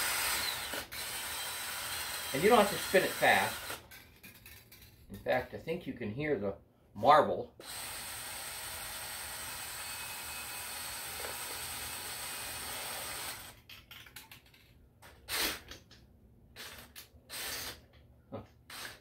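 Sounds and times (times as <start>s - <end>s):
cordless drill whirring: 0.0s - 3.8s, 7.6s - 13.6s
ball rattling inside can: 13.6s - 14.8s.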